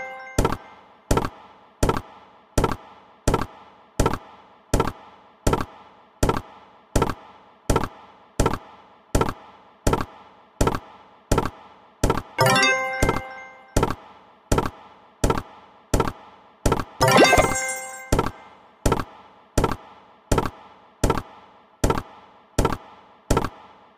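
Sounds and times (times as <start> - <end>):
chiming jingle: 17.0 - 18.1.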